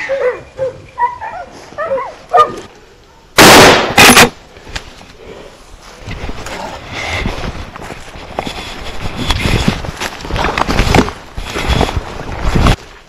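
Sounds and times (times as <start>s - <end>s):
shotgun shots: 3.4s - 4.4s.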